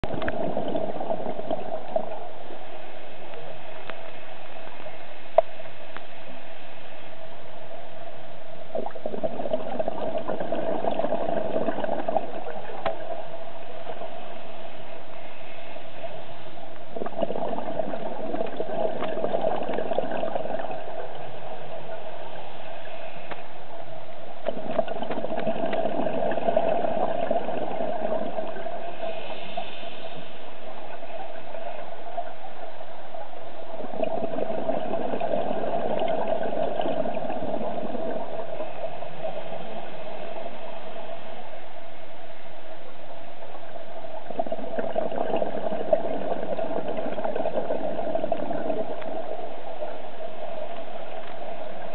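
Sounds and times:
underwater bubbles gurgling: 0.0 - 6.4, 8.6 - 51.9
regulator hiss: 25.9 - 33.9.

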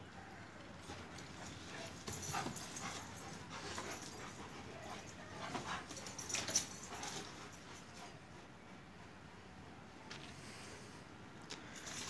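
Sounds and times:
dogs scuffling: 0.7 - 8.5
dog panting: 0.9 - 9.5.

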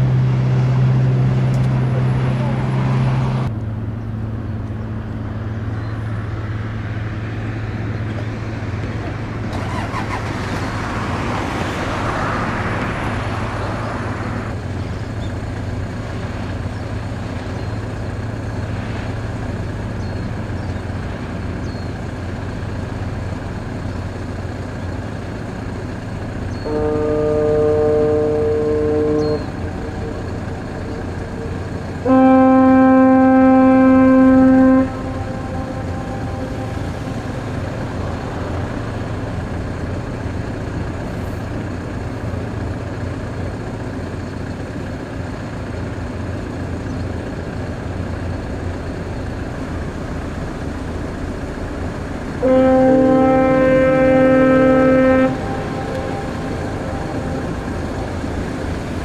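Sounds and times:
steady low rumble: 10.7 - 59.0
ship's horn blasts: 26.5 - 40.4, 52.2 - 59.0.

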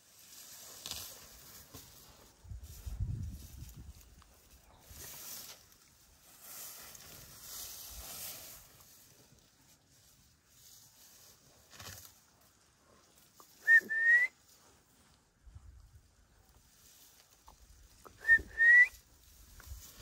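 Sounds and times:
grass rustling: 0.0 - 20.0
person whistling two notes: 13.6 - 14.3, 18.2 - 19.0.

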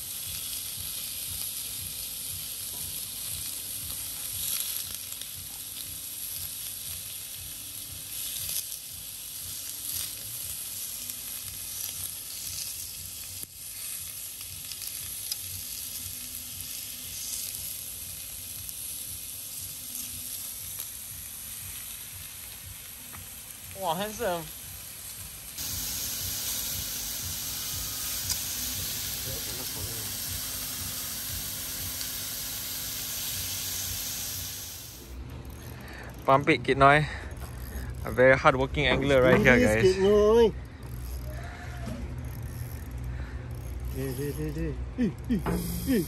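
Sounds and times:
meat sizzling on griddle: 0.0 - 35.7, 45.4 - 46.0.

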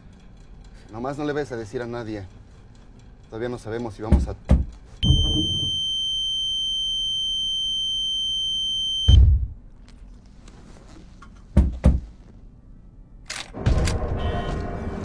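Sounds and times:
sharp knocks: 4.1 - 5.7, 11.5 - 12.1
heavy thump: 4.1 - 5.8, 9.1 - 9.6.

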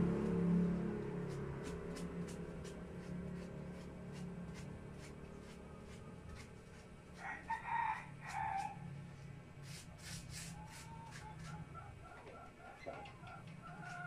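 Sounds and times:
steady low hum: 0.0 - 7.2
rooster crowing: 7.2 - 8.8.

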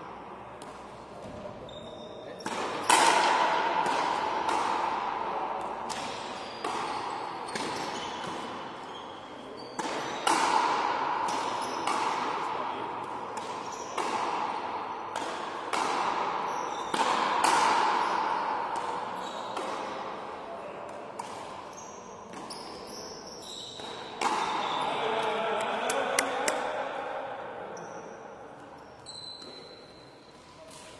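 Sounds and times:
racket striking ball: 2.4 - 8.6, 9.8 - 20.1, 23.8 - 24.7
ball smacking wall with echo: 2.4 - 8.8, 9.6 - 22.6, 23.7 - 27.6.

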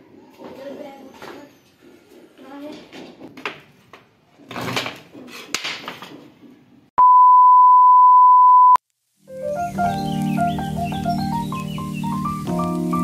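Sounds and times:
steady test-tone beep: 7.0 - 8.8.

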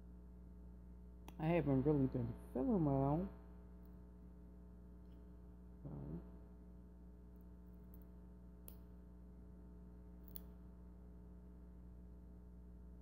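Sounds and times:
low hum: 0.0 - 13.0
short hummed vocal sound: 5.8 - 6.4.

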